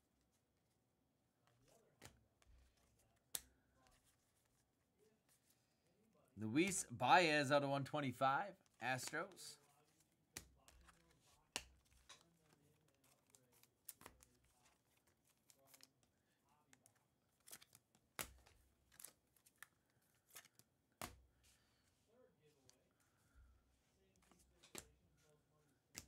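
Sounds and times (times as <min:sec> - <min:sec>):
cards sliding and rustling: 0:08.6 - 0:16.1, 0:16.7 - 0:22.9, 0:23.6 - 0:26.0
cards clicking when flipped: 0:10.3 - 0:14.3, 0:16.7 - 0:21.3, 0:24.2 - 0:25.0.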